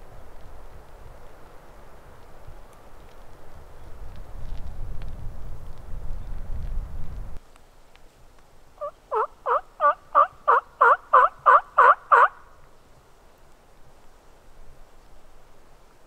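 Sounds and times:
turkey call yelps: 0:08.8 - 0:12.5.

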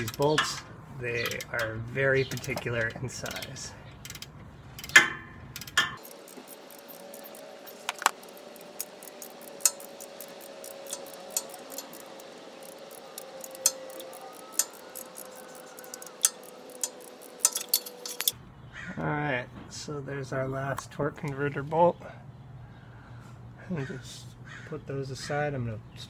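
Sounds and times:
wrench clinking on bolt: 0:00.0 - 0:18.4
sharp metal clank: 0:04.8 - 0:06.1.

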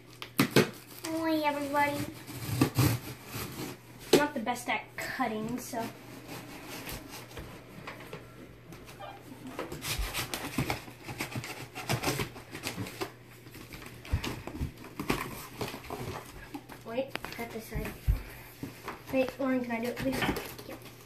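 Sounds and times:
scrapes and rips on cardboard: 0:00.4 - 0:04.2, 0:05.6 - 0:07.4, 0:09.5 - 0:17.9
blade cutting packing tape: 0:02.0 - 0:03.7, 0:09.7 - 0:13.0.

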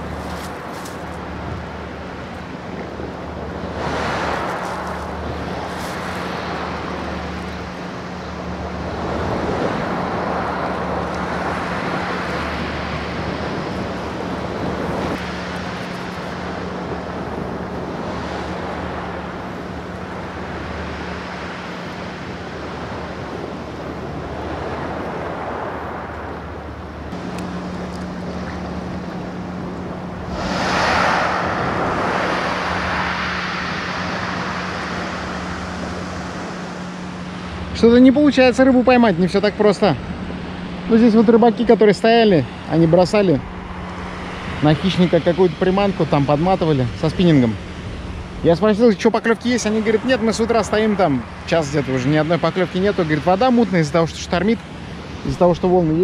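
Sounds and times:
wind on microphone: 0:00.0 - 0:38.1
steady low hum: 0:00.0 - 0:56.0
waves washing against concrete pier: 0:00.0 - 0:56.0.

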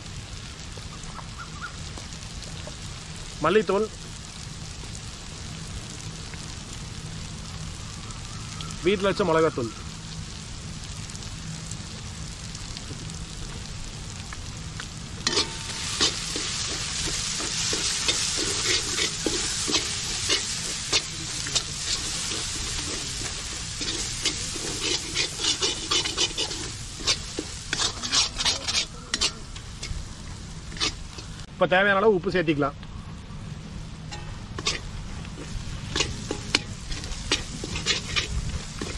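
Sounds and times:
food sizzling in metal pan: 0:00.0 - 0:38.9
metal ladle scraping and clinking: 0:15.3 - 0:30.0, 0:30.7 - 0:31.3, 0:34.1 - 0:38.9.

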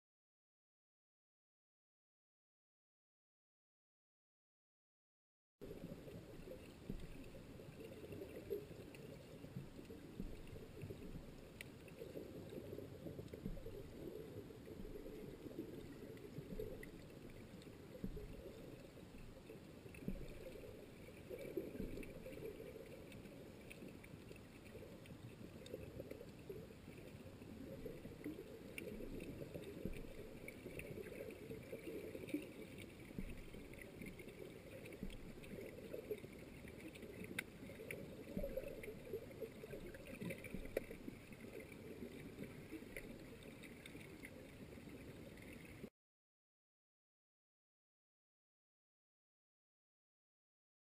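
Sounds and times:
underwater rumble of moving water: 0:05.6 - 0:45.9
faint clicks: 0:05.7 - 0:45.9.

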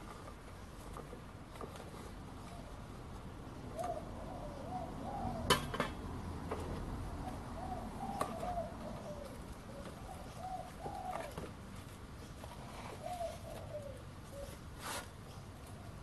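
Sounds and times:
dove cooing: 0:02.4 - 0:14.7.

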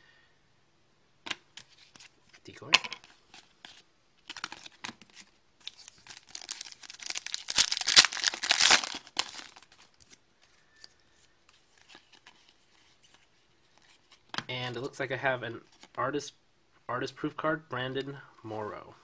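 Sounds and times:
cards clicking and rustling: 0:02.7 - 0:10.2
card pack wrapper tearing: 0:04.2 - 0:05.0, 0:05.6 - 0:09.8.

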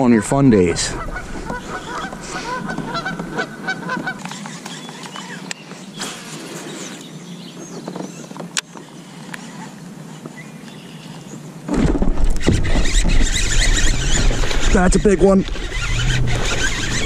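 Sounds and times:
geese honking: 0:00.1 - 0:04.3.

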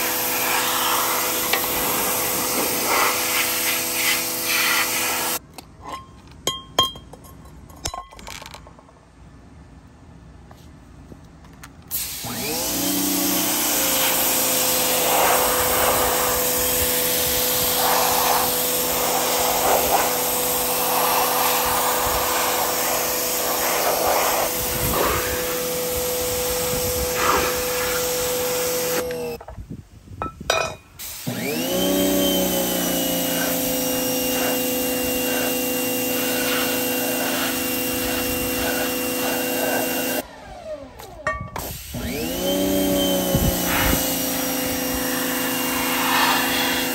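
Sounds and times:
pressure washer spraying metal pans: 0:00.0 - 0:05.4, 0:11.9 - 0:29.0, 0:30.5 - 0:40.2, 0:41.3 - 0:46.9
motor winding up: 0:31.2 - 0:46.9.

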